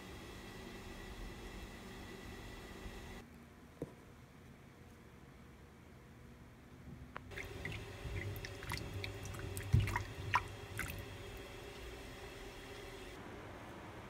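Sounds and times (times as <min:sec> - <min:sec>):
water splashing in a bowl: 0:07.3 - 0:11.4.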